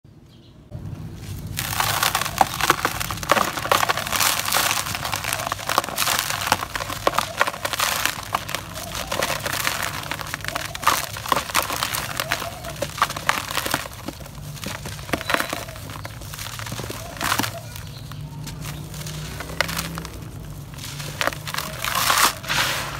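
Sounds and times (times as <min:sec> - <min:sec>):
hands crushing cement clumps: 0:01.3 - 0:22.9
grit falling into plastic tub: 0:01.5 - 0:22.9.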